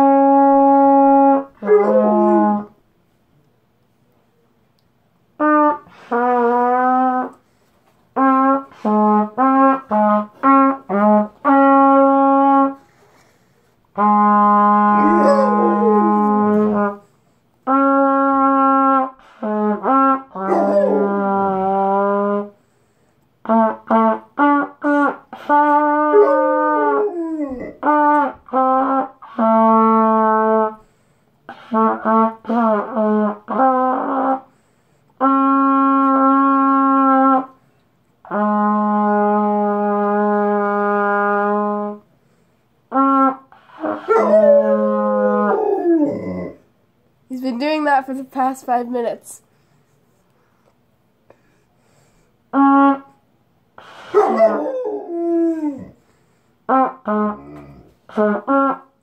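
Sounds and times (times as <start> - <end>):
trumpet playing: 0.0 - 2.8, 5.4 - 22.8, 23.4 - 46.1, 52.5 - 55.8, 56.6 - 59.0
dog howling: 0.6 - 2.8, 14.9 - 17.0, 20.4 - 21.8, 26.0 - 27.9, 43.8 - 46.6, 54.1 - 56.0.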